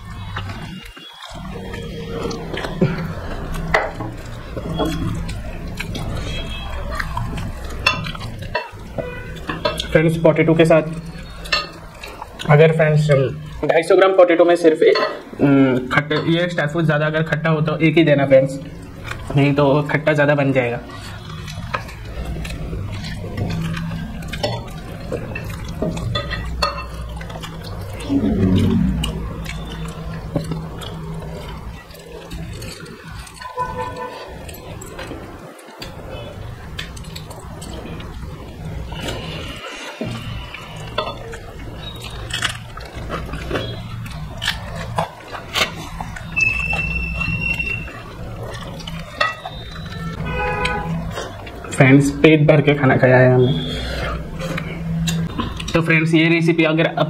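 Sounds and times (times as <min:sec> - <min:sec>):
wet chewing: 0:00.0 - 0:13.8, 0:18.6 - 0:56.1
lip smacks and mouth clicks: 0:40.1 - 0:51.8, 0:53.7 - 0:55.8
high whistle-like squeak: 0:46.3 - 0:48.0.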